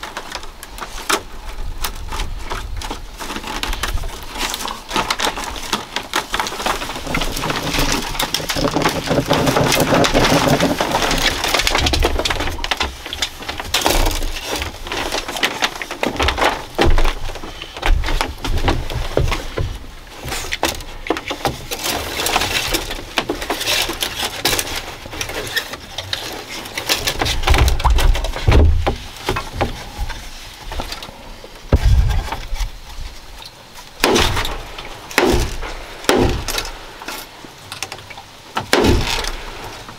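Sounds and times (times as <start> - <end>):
bamboo strips rustling and clicking: 0.0 - 39.9
dull knocks: 27.2 - 30.2, 34.0 - 36.8.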